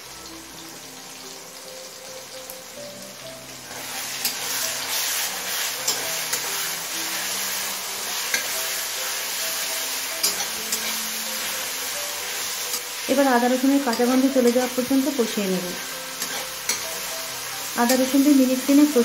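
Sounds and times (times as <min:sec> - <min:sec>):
paste sizzling in hot oil: 0:00.0 - 0:19.0
metal spatula clicking on pan: 0:10.2 - 0:10.9.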